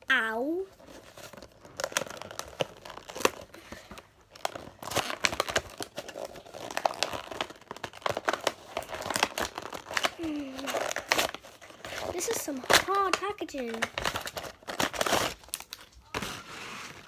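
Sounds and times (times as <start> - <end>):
cardboard box being torn open: 4.4 - 13.0, 13.7 - 17.0.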